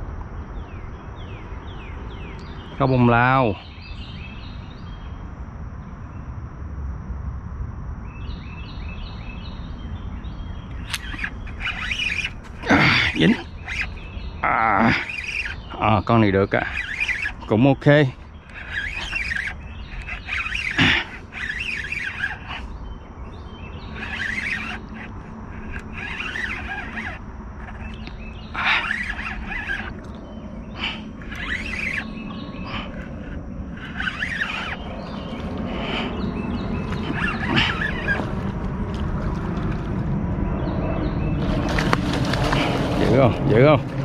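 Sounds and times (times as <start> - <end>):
birds chirping: 0.3 - 6.4, 7.9 - 44.0
motorboat engine hum: 8.8 - 44.0.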